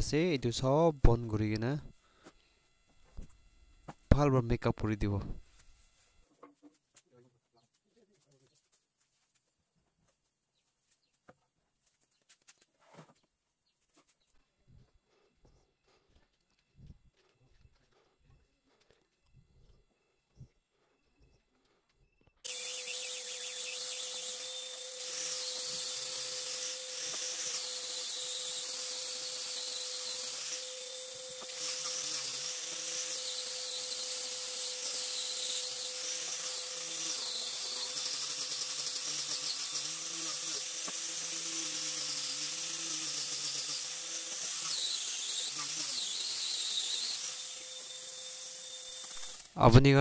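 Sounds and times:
power tool cutting wood: 22.4s - 49.8s.

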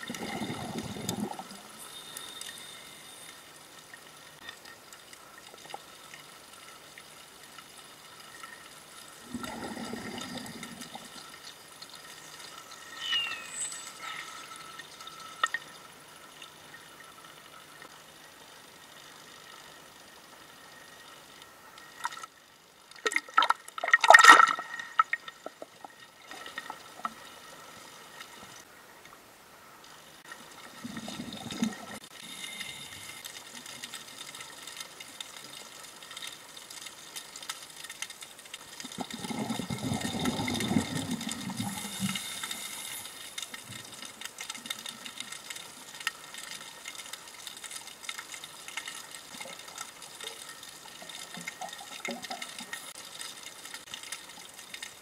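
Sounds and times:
low bubbling rushes: 0.0s - 1.8s, 38.9s - 42.0s
faint underwater crackle: 0.0s - 55.0s.

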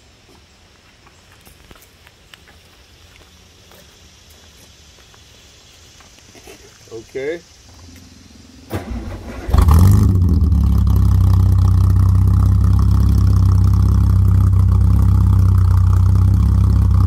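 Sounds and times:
car engine starting and idling: 7.8s - 17.0s.

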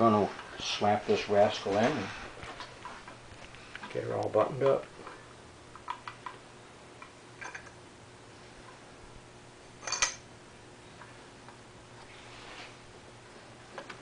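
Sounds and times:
faint steady hum: 0.0s - 14.0s
metal parts clicking and tapping: 9.8s - 10.2s.

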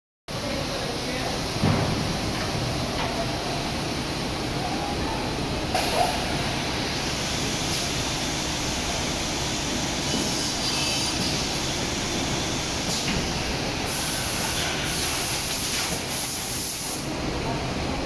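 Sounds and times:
short bursts of hiss: 13.9s - 17.1s.

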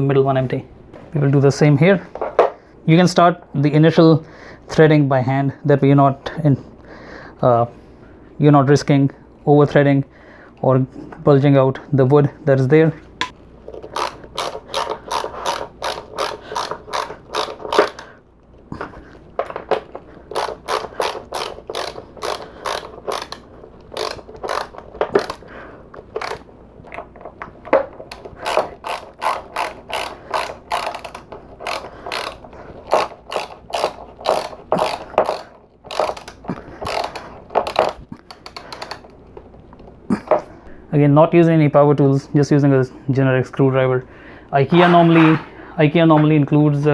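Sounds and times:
screwdriver clicking: 13.7s - 18.1s, 19.5s - 25.4s, 26.0s - 27.0s, 27.7s - 39.2s.

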